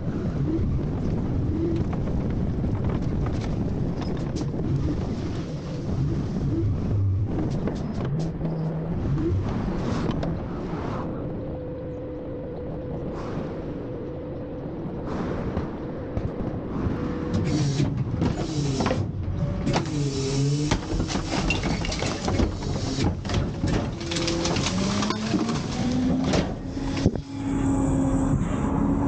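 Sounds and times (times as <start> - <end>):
hydraulic whine: 15.5 - 29.0
garbage truck engine: 17.3 - 29.0
trash clattering into hopper: 20.7 - 27.1.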